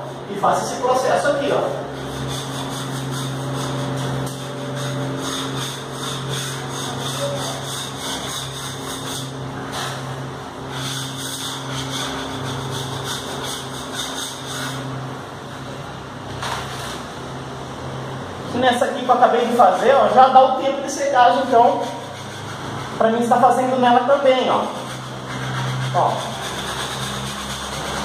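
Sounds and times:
steady low hum: 0:00.0 - 0:28.0
spatula scraping paint off wall: 0:01.0 - 0:15.0, 0:16.4 - 0:17.1, 0:19.0 - 0:28.0.

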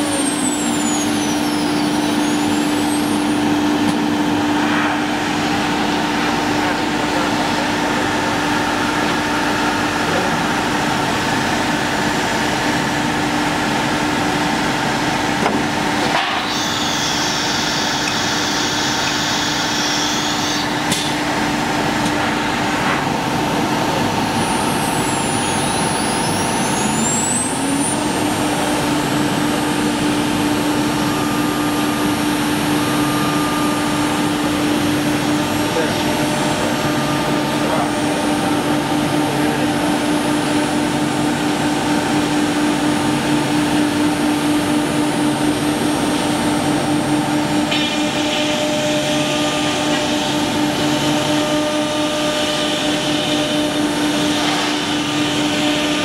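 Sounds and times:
router spindle whine: 0:00.0 - 0:13.8, 0:14.4 - 0:56.0
router cutting wood: 0:15.4 - 0:22.8, 0:24.1 - 0:42.2, 0:45.7 - 0:56.0.

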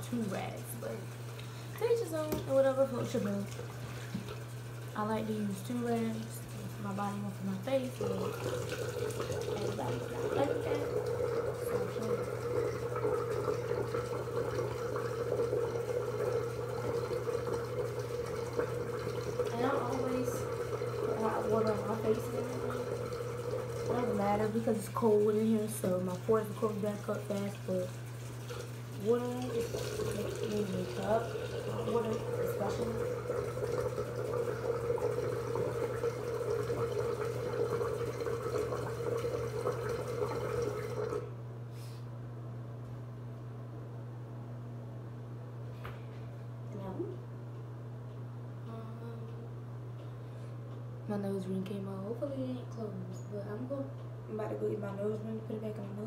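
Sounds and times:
sink tap running: 0:00.0 - 0:41.3
low steady hum: 0:00.0 - 0:56.0
tap running into sink: 0:01.4 - 0:04.4
water splashing: 0:07.8 - 0:41.2.

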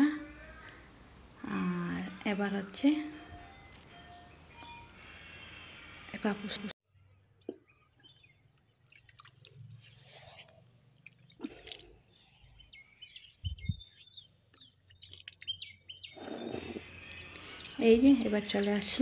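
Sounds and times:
faint bird chirping: 0:06.9 - 0:19.0.

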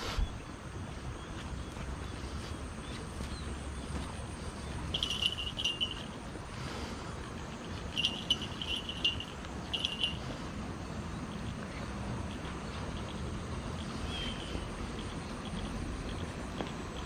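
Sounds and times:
steady low rumble: 0:00.0 - 0:17.0
insect chirping trills: 0:03.4 - 0:17.0.

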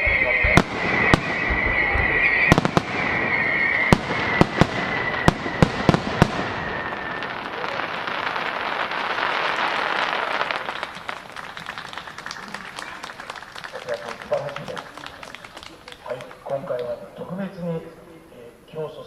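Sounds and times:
fireworks crackling: 0:00.0 - 0:17.1
firework shells bursting: 0:00.4 - 0:12.5.

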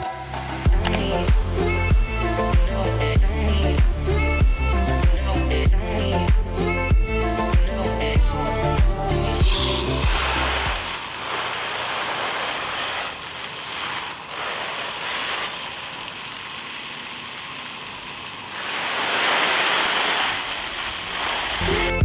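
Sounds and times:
hose spraying water on plants: 0:09.4 - 0:22.0.

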